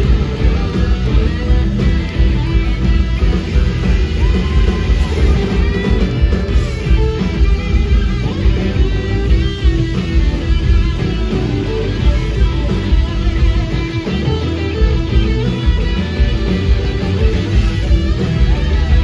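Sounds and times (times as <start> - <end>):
lead guitar bending notes: 0.0 - 19.0
live blues-rock band: 0.0 - 19.0.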